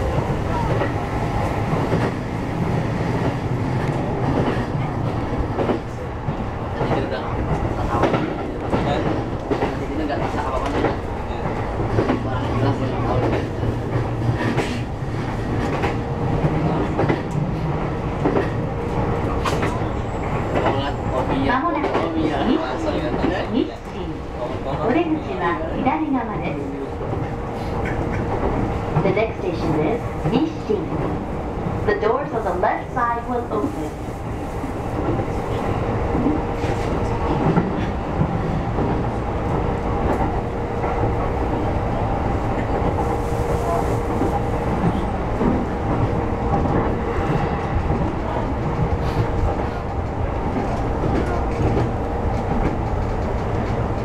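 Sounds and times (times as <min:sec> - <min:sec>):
electric train running hum: 0:00.0 - 0:54.0.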